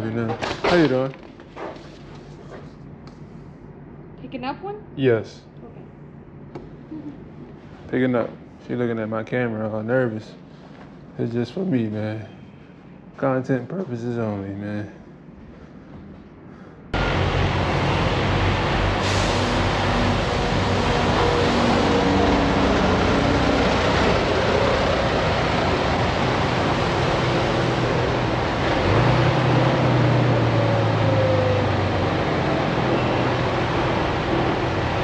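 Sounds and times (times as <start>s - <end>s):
road noise roar: 15.0s - 35.0s
truck diesel engine running: 17.0s - 35.0s.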